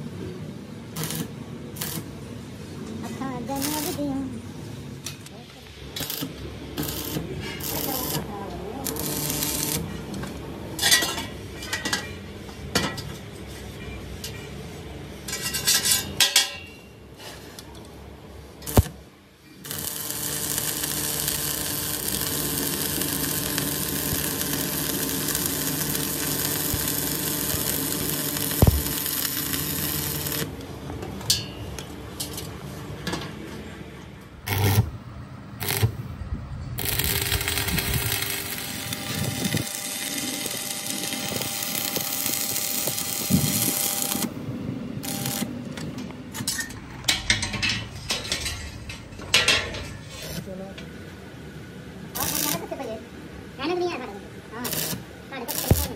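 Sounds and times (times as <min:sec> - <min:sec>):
welding arc crackling and hissing: 0:00.9 - 0:02.2, 0:03.1 - 0:04.3, 0:05.8 - 0:11.0, 0:18.6 - 0:19.0, 0:19.6 - 0:30.6, 0:34.5 - 0:35.0, 0:35.6 - 0:36.1, 0:36.8 - 0:45.6, 0:52.1 - 0:52.9, 0:54.5 - 0:55.9
metal clanks: 0:46.3 - 0:50.2.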